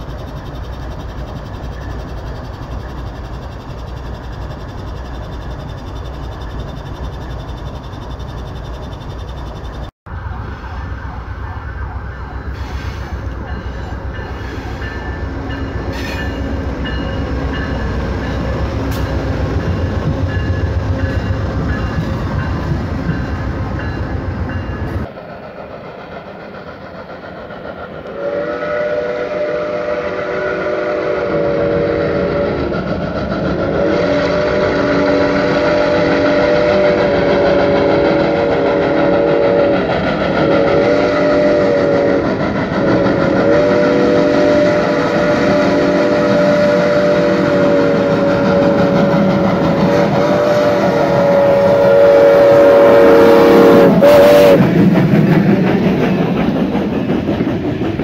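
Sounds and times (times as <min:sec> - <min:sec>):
train wheels rumbling on rail: 0:00.0 - 0:58.0
steam locomotive whistle: 0:28.0 - 0:54.8.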